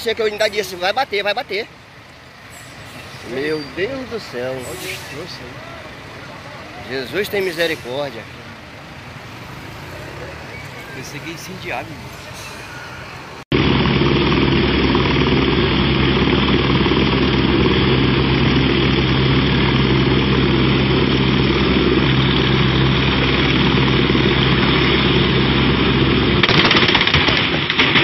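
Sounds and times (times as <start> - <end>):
helicopter engine and rotor running: 13.5 - 27.1.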